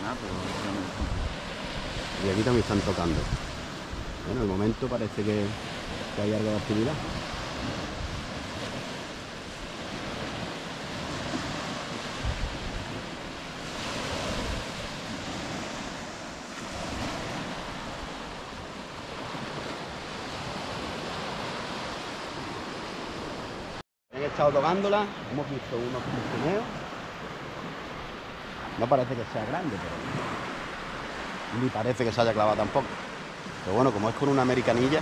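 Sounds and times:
wind buffeting microphone: 0:00.0 - 0:23.8
waves breaking on sandy shore: 0:00.0 - 0:35.0.

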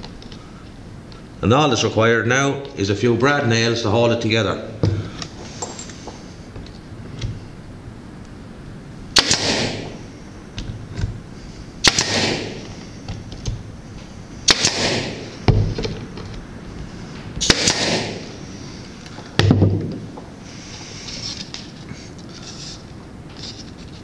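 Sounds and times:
nail gun shots: 0:09.2 - 0:10.0, 0:11.8 - 0:12.7, 0:14.5 - 0:15.4, 0:17.4 - 0:18.3
exhaust air hiss: 0:14.0 - 0:15.6, 0:16.8 - 0:19.3, 0:20.3 - 0:22.8.

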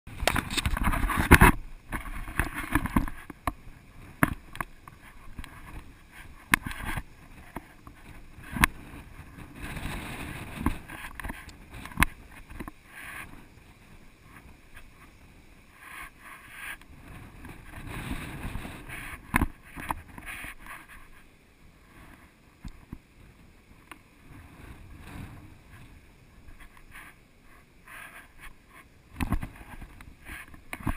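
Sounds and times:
wind buffeting microphone: 0:00.1 - 0:15.8, 0:16.9 - 0:20.9, 0:22.1 - 0:26.9.

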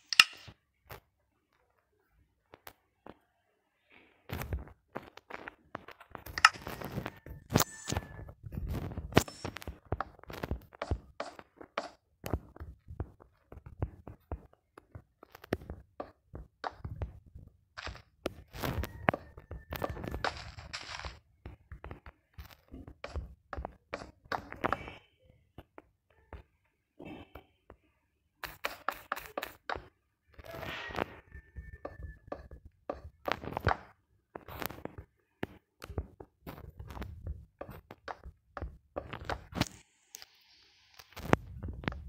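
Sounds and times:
wooden pieces knocking and scraping: 0:00.0 - 0:00.5, 0:05.0 - 0:12.5, 0:17.8 - 0:25.0.

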